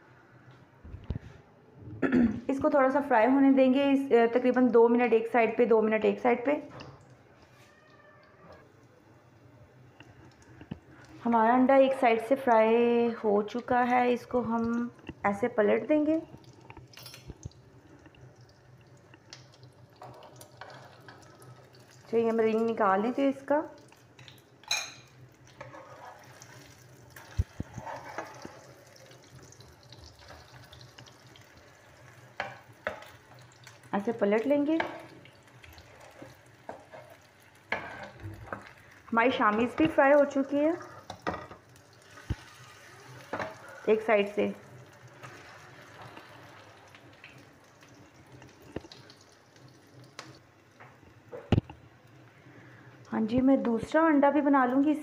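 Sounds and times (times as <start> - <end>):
food sizzling in oil: 11.2 - 53.5.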